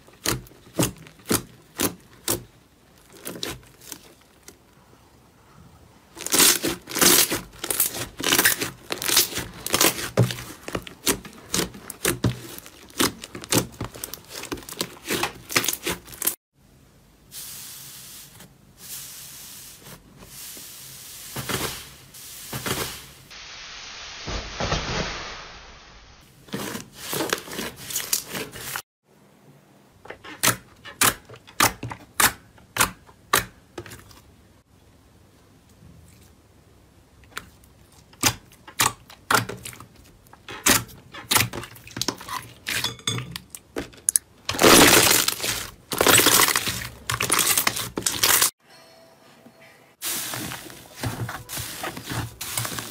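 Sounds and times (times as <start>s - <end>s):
slime squishing: 0.0s - 4.8s, 6.1s - 16.4s, 43.4s - 48.5s.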